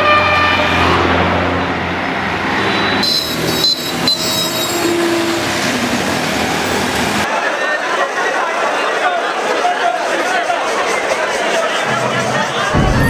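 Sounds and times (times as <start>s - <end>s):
vehicle horn: 0.0s - 1.6s, 2.6s - 5.5s
buses and cars passing: 0.0s - 9.2s.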